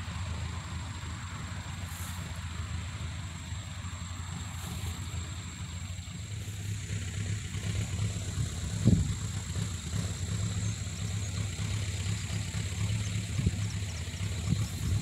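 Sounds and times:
low motor-like hum: 0.0s - 15.0s.

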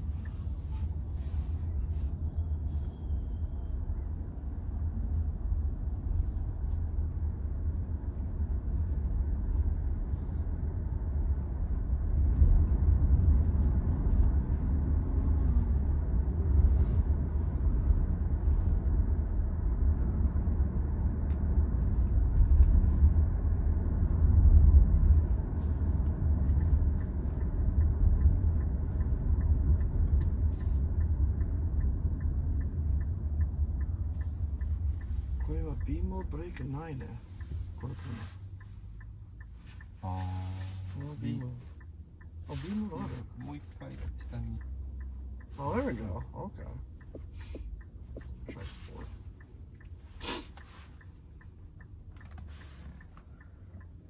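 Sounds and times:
road and tyre rumble: 0.0s - 54.0s
light regular ticking: 23.4s - 40.1s, 40.9s - 54.0s.

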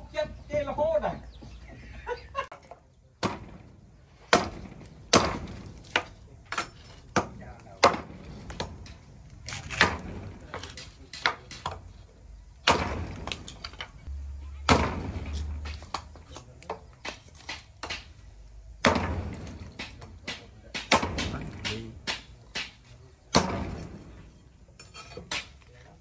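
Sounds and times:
cleaver chopping wood: 3.2s - 3.6s, 4.2s - 8.8s, 12.6s - 13.5s, 14.7s - 18.2s, 18.8s - 23.8s.

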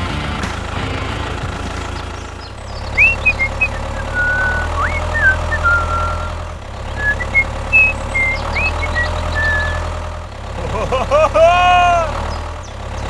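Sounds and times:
tractor engine running: 0.0s - 13.0s
bird chirps: 2.0s - 10.0s, 12.2s - 13.0s.

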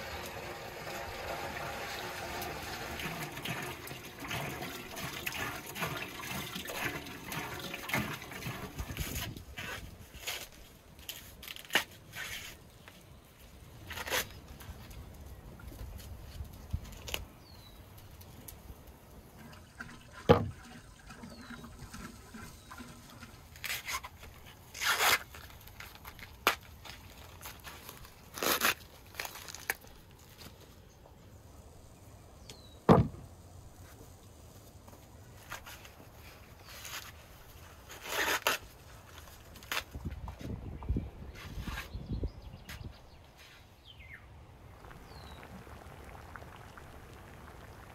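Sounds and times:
corn husks rustling and tearing: 8.1s - 18.6s, 22.5s - 30.9s, 33.8s - 40.6s
sharp knocks: 32.9s - 33.2s.

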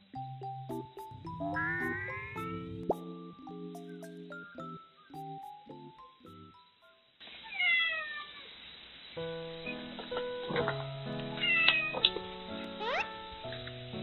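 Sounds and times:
light background music: 0.0s - 7.2s, 9.2s - 14.0s
cat meowing: 7.5s - 8.5s, 11.4s - 12.1s, 12.8s - 13.1s.

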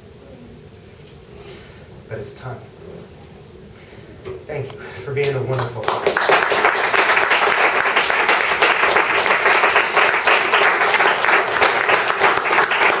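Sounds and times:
students applauding: 5.2s - 13.0s.

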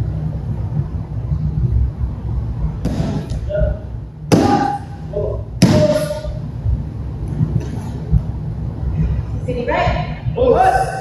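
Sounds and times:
bodies thudding on mat: 2.8s - 3.3s, 4.3s - 4.8s.

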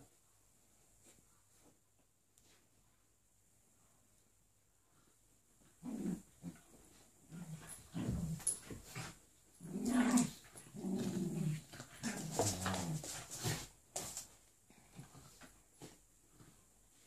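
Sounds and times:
dogs growling in play: 5.6s - 13.7s.

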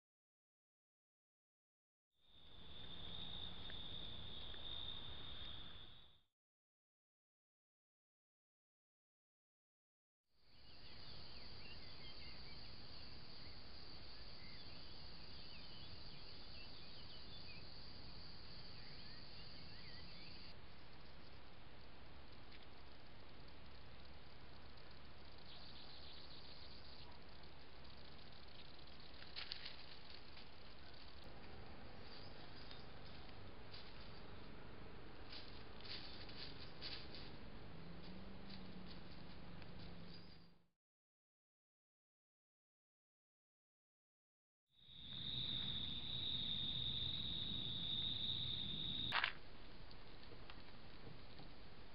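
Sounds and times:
high-pitched insect chorus: 2.3s - 6.2s, 10.6s - 20.5s, 44.8s - 49.4s
faint low hum: 10.5s - 40.6s
bird chirps: 14.2s - 17.7s, 18.6s - 20.5s, 25.3s - 29.2s, 39.8s - 40.6s
rustling in dry leaves: 29.1s - 34.3s, 35.2s - 39.4s.

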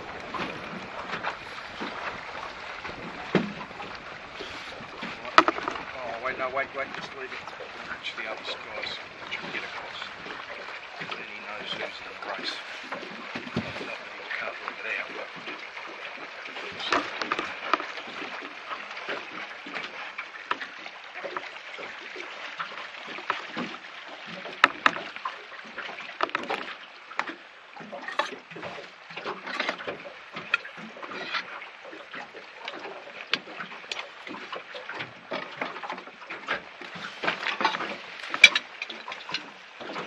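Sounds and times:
waves splashing against boat hull: 0.0s - 40.0s
knocks on boat hull: 5.1s - 5.9s.

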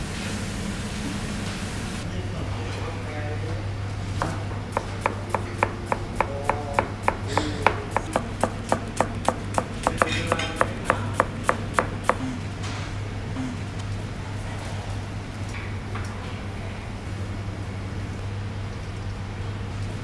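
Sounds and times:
knife chopping onion on board: 4.2s - 12.4s.

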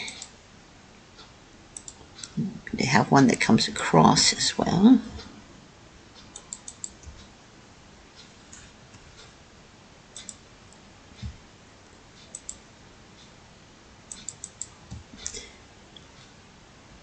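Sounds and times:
computer mouse buttons clicking: 1.8s - 2.4s, 6.2s - 7.2s, 10.2s - 10.4s, 12.2s - 12.6s, 14.1s - 15.4s
soft low thumps: 11.2s - 11.5s.

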